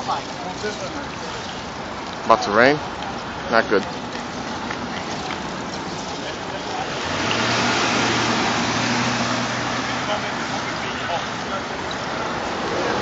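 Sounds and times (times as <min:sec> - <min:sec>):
car driving past: 0:06.7 - 0:13.0.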